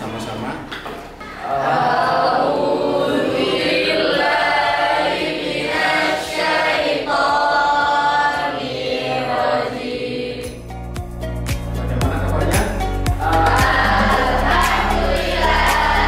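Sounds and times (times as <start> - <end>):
students chanting in unison: 1.4 - 10.6, 13.2 - 16.0.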